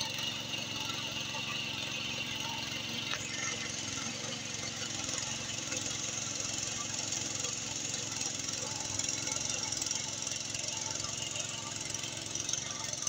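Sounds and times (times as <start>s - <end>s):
small engine running under load: 0.0s - 13.0s.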